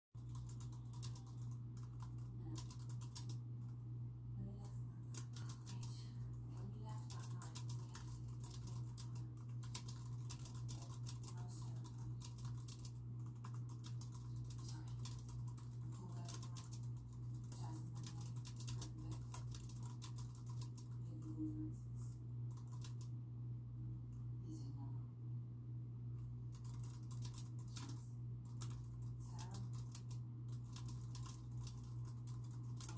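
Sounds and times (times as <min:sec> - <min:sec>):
typing on computer keyboard: 0:00.2 - 0:03.4, 0:05.1 - 0:05.9, 0:06.6 - 0:21.3, 0:22.5 - 0:23.1, 0:26.5 - 0:32.9
low hum: 0:00.2 - 0:32.9.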